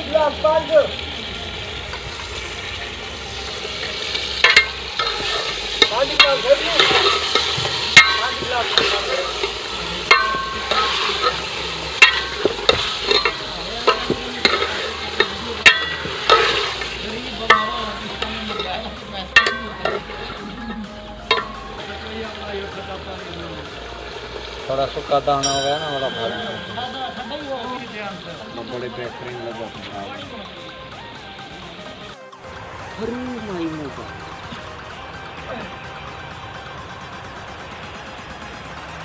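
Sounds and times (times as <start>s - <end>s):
chicken sizzling in oil: 0.0s - 32.2s
metal ladle clinking on pot: 4.4s - 5.5s, 6.2s - 16.7s, 19.4s - 20.1s.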